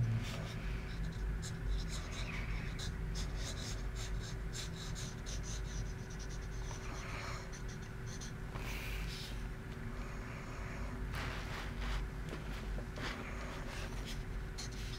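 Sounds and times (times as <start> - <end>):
pencil scratching on paper: 0.2 - 8.4, 13.0 - 14.9.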